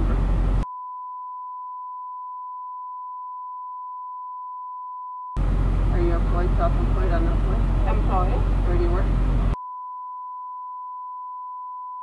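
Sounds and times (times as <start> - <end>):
censor bleep tone: 0.6 - 5.4, 9.5 - 12.0.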